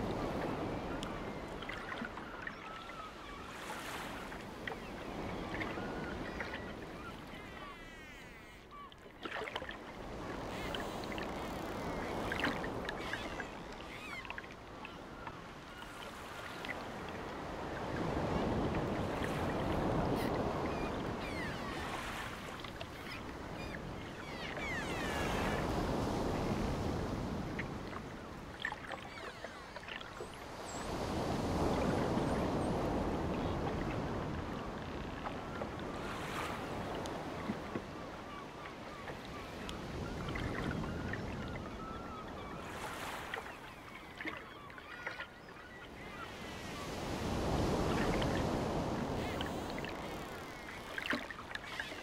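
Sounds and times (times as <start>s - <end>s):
ocean waves breaking on beach: 0.0s - 7.9s, 8.7s - 52.0s
birds chirping: 19.9s - 25.7s.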